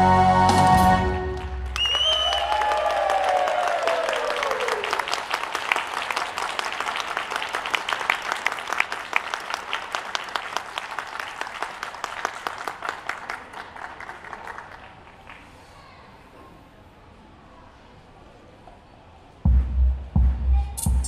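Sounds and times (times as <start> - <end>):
audience applauding: 1.2 - 15.5.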